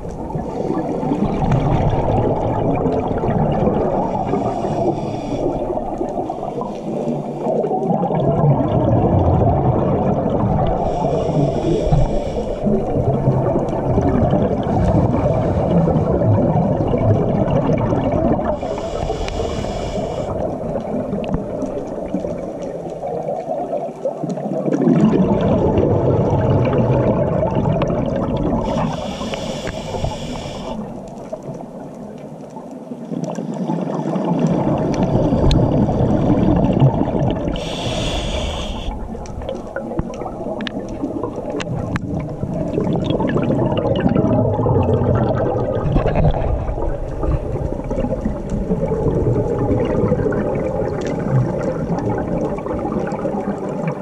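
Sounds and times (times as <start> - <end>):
exhaled bubbles rumbling: 0.0 - 54.0
regulator air hiss: 4.2 - 5.7, 10.8 - 12.7, 18.6 - 20.4, 28.6 - 31.0, 37.6 - 39.1.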